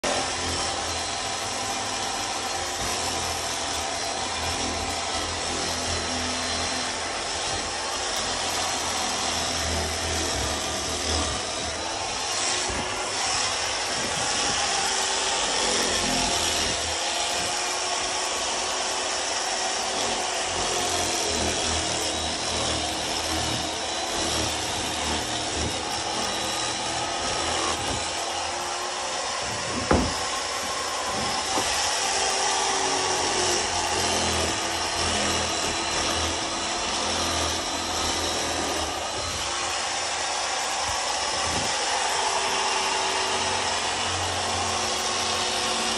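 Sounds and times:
electric foam knife cutting: 0.0s - 45.9s
sharp knock: 29.8s - 30.2s.

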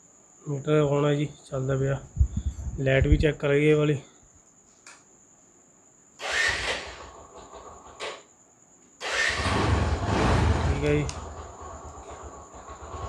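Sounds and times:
crickets chirring: 0.0s - 13.0s
noisy rushes: 9.0s - 13.0s.

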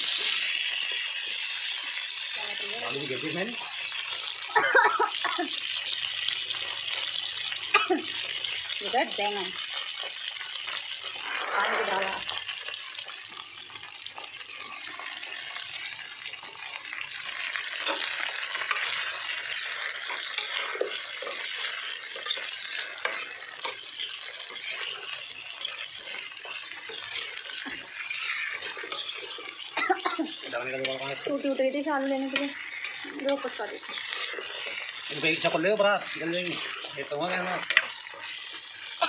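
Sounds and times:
vegetables sizzling in hot oil: 0.0s - 39.0s.

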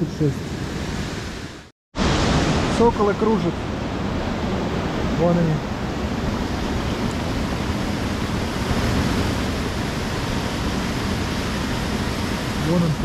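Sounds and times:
waterfall rushing: 2.0s - 13.0s.

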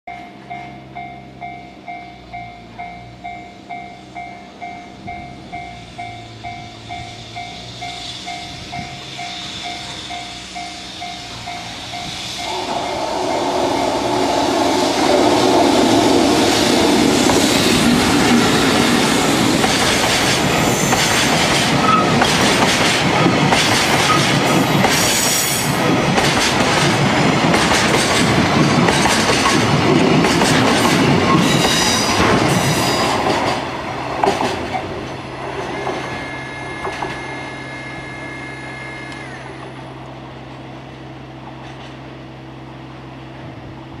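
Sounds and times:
electric locomotive running: 0.1s - 44.0s
train wheels clickety-clack: 1.8s - 37.3s, 41.5s - 42.1s
high wheel squeal: 5.3s - 25.8s, 34.7s - 39.6s.

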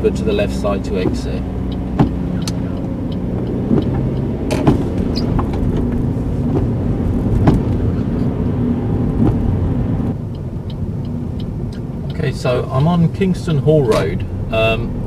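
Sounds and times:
engine and tyres rumble: 0.0s - 15.0s
sharp knocks: 1.0s - 2.6s, 3.4s - 7.9s.

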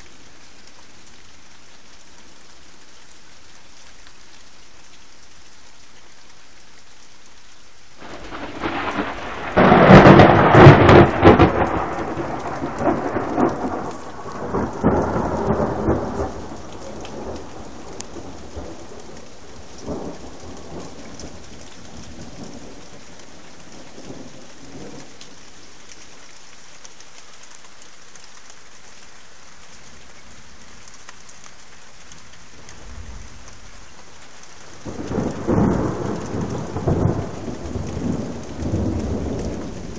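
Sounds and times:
steady rain: 0.0s - 39.9s
thunder rolling: 8.0s - 22.8s, 32.6s - 39.9s.

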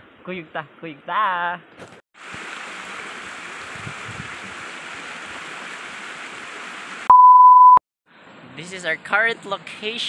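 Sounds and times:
flowing water rushing: 2.2s - 7.1s.

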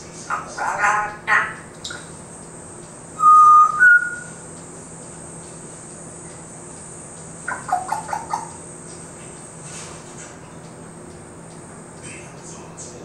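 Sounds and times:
parrot chirping: 0.3s - 2.1s, 3.2s - 4.4s, 7.4s - 8.7s
parrot whistling: 3.2s - 4.4s, 7.4s - 8.6s.

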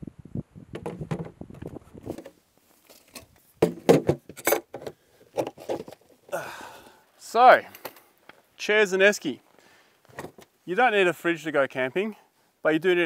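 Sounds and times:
cooler handling clicks and knocks: 3.0s - 6.0s.

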